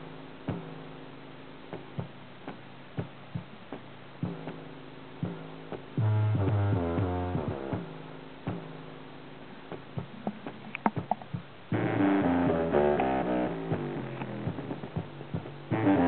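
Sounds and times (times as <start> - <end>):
bass-heavy music through speaker: 2.9 - 16.0
scattered clicks: 10.2 - 11.4.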